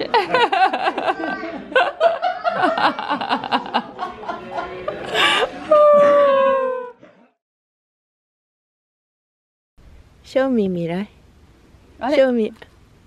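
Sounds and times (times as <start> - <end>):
group of adults laughing: 0.0 - 7.4.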